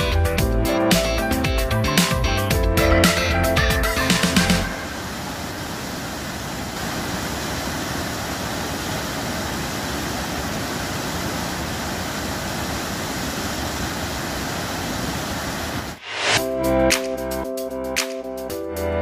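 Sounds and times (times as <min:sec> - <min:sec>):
waterfall and rapids roaring: 0:03.1 - 0:16.4.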